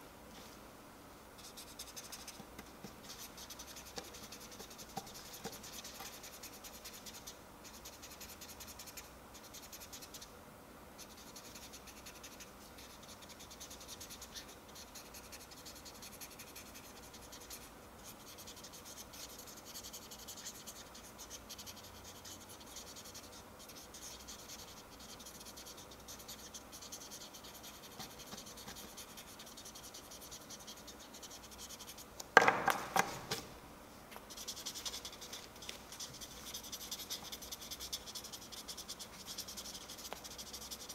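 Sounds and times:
marker scratching: 1.4s - 10.3s, 11.0s - 33.5s, 34.3s - 40.9s
sharp knock: 32.4s - 33.2s.

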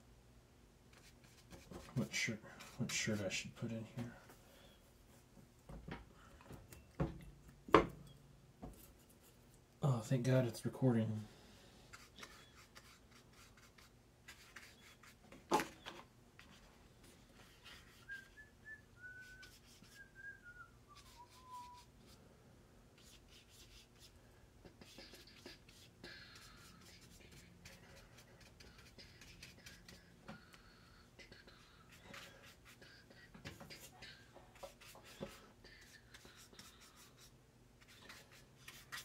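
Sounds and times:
paintbrush scratching on paper: 0.9s - 3.6s, 11.9s - 15.2s, 16.4s - 18.3s, 19.3s - 20.0s, 21.0s - 22.0s, 23.0s - 30.5s, 31.2s - 39.0s
person whistling a tune: 18.1s - 21.8s.

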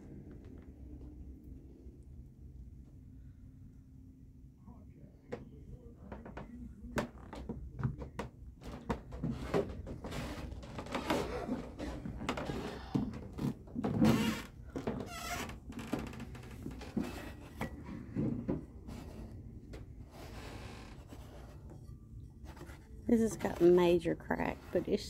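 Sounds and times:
footsteps on wooden floor: 7.0s - 19.8s
floor squeak: 8.8s - 17.8s.

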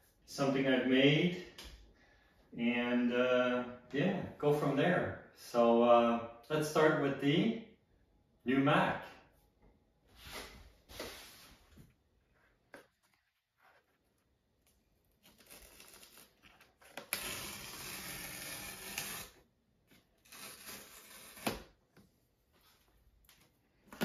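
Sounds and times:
cardboard tear strip ripping: 15.2s - 19.4s, 20.2s - 21.8s.

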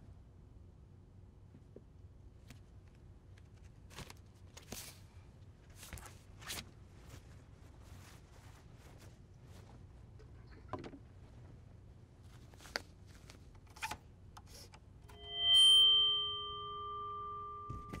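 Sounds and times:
ringing chord of tones: 15.1s - 18.0s.

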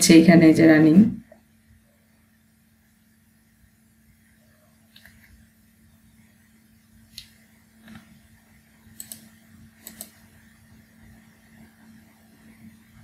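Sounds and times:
faint steady hum: 0.0s - 13.0s
computer mouse clicking: 8.9s - 10.2s.

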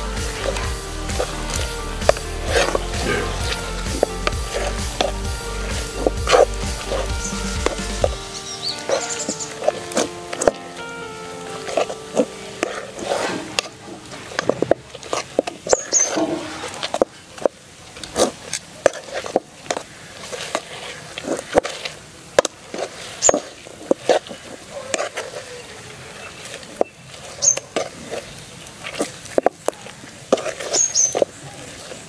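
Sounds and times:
metal spatula scraping a pan: 11.6s - 17.0s.

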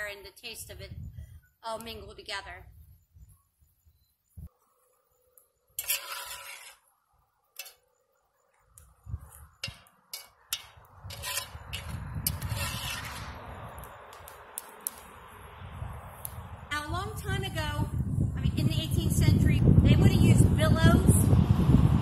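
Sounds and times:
ladle stirring soup: 5.8s - 6.9s, 9.2s - 13.3s
ladle clinking on iron pot: 9.6s - 12.8s.

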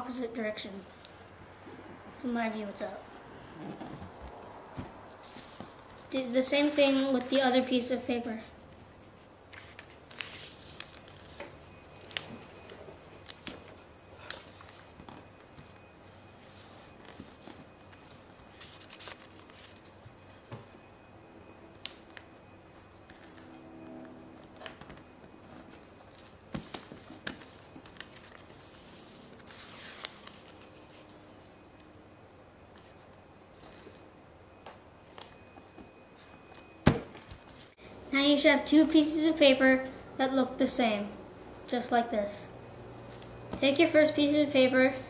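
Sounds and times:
paper rustling: 9.2s - 12.6s, 16.4s - 20.0s, 24.6s - 31.0s.

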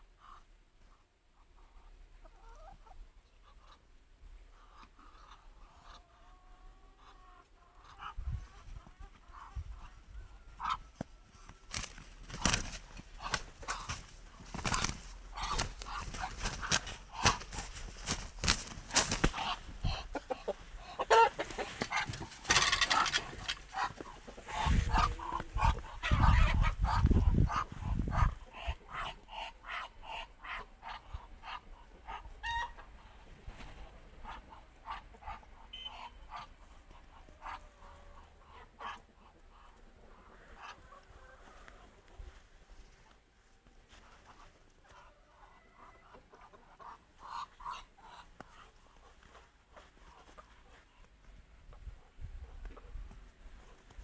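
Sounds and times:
fowl clucking: 4.5s - 42.3s, 44.2s - 49.4s.

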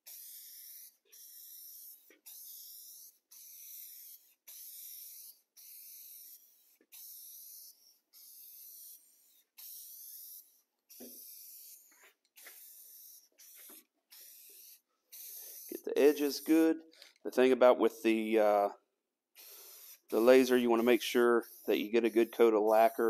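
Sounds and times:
aerosol can spraying: 0.0s - 16.7s, 17.3s - 18.7s, 19.4s - 23.0s.

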